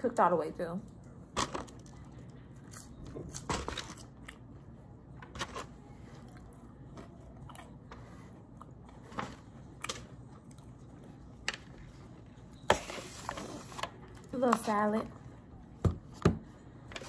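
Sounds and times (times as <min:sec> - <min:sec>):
person chewing french fries: 0:00.9 - 0:12.6.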